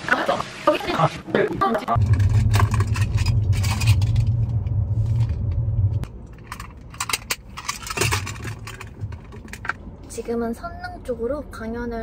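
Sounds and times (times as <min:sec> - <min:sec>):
loud low rumble: 0:01.9 - 0:06.6.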